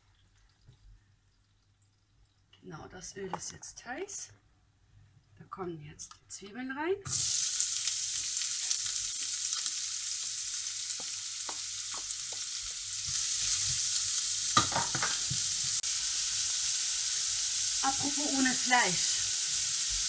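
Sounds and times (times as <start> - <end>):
onions sizzling in hot oil: 7.1 - 20.0.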